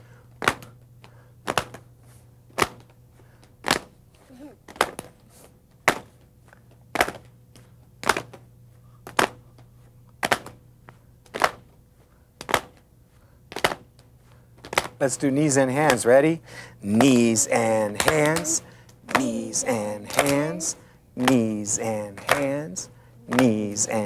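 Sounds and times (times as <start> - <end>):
people clapping in unison: 1.4 - 1.8, 10.2 - 10.6, 11.3 - 11.7, 16.9 - 24.0.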